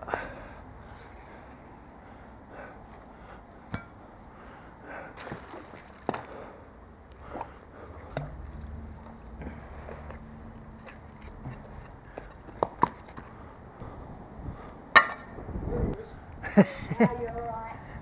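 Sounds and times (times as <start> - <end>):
low rumble: 13.8 - 16.4.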